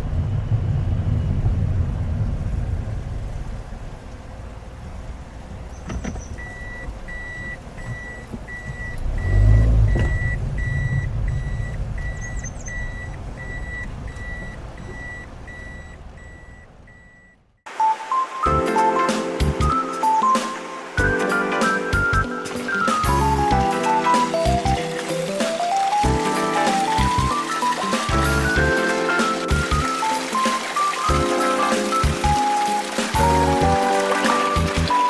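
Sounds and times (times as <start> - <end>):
engine and road rumble: 0.0 - 17.8, 19.4 - 35.0
reverse warning beeper: 6.4 - 17.4.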